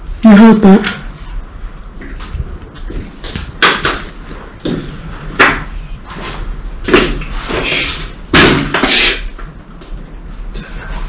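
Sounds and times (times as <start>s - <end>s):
loud knocks: 8.3s - 9.0s.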